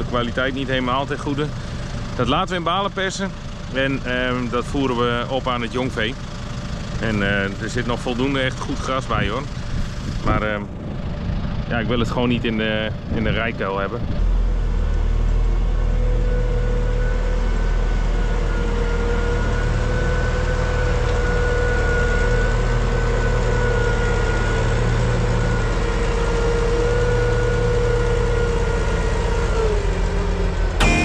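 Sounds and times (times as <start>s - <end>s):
tractor engine running: 0.0s - 31.0s.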